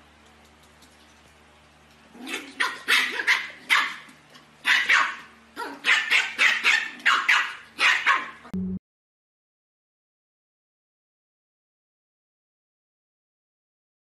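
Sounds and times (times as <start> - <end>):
puppy yapping: 2.2 - 8.5.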